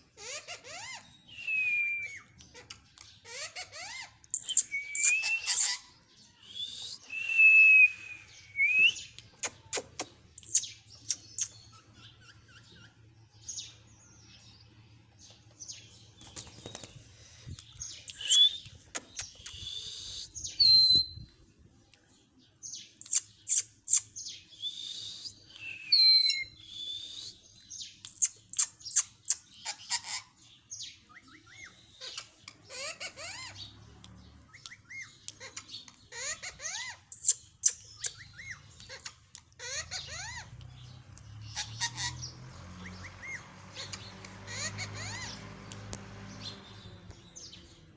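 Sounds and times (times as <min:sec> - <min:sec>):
parakeet clicks and chirps: 0:02.2 - 0:05.8, 0:08.8 - 0:13.0, 0:16.2 - 0:20.9, 0:23.0 - 0:24.3, 0:27.6 - 0:30.2, 0:32.0 - 0:47.7
parakeet screeching and whistling: 0:03.3 - 0:06.0, 0:19.5 - 0:21.2, 0:34.9 - 0:40.5, 0:41.4 - 0:45.6.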